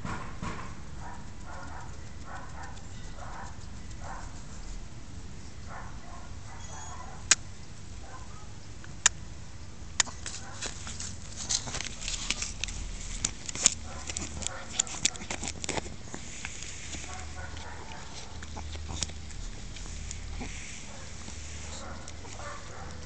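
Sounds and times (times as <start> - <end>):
dog nibbling and licking paw: 1.1 - 4.8, 10.0 - 23.0
sharp clicks: 1.2 - 4.4, 8.8 - 9.2.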